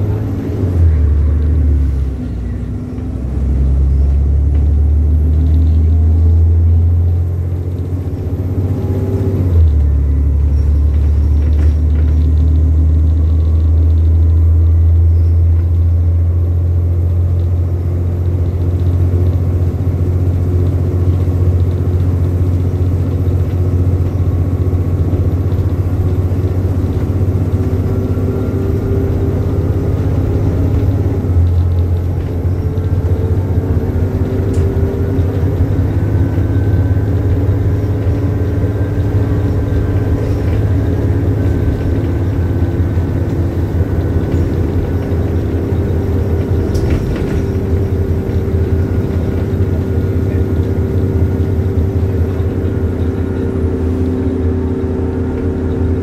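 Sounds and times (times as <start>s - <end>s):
diesel bus engine under load: 0.0s - 56.0s.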